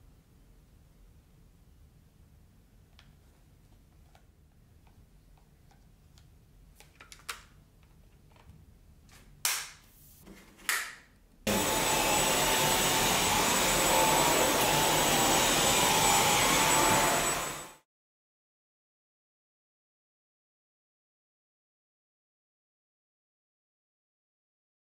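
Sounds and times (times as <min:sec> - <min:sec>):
cordless vacuum whining: 0:11.5 - 0:17.8.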